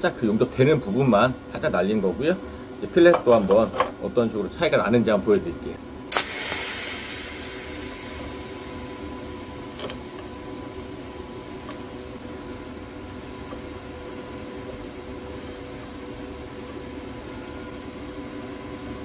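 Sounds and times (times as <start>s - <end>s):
faint steady whine: 0.0s - 19.0s
welding arc hissing: 6.1s - 19.0s.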